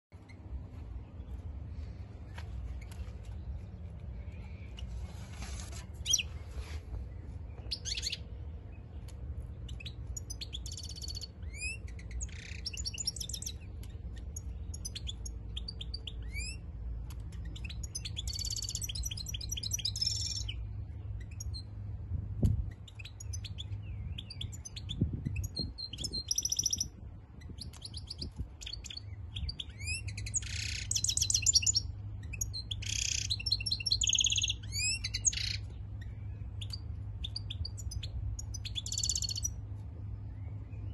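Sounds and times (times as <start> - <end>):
low steady rumble: 0.1 - 40.9
goldfinch twittering song: 6.0 - 6.5, 7.4 - 16.7, 17.3 - 21.7, 22.7 - 39.6.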